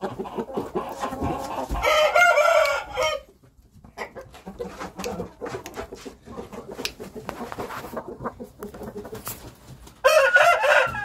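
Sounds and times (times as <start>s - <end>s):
chicken clucking: 0.0s - 11.0s
rooster crowing: 1.8s - 3.3s, 10.0s - 11.0s.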